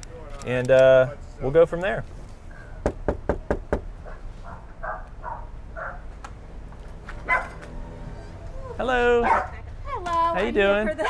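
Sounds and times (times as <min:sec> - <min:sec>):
knuckles knocking on door: 0:02.8 - 0:03.8.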